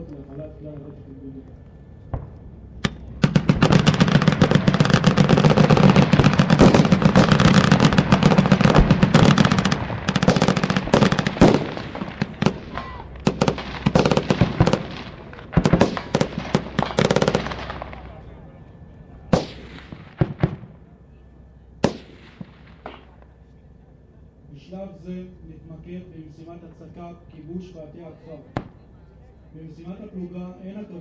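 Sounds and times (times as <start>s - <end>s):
automatic gunfire bursts: 2.8s - 17.7s.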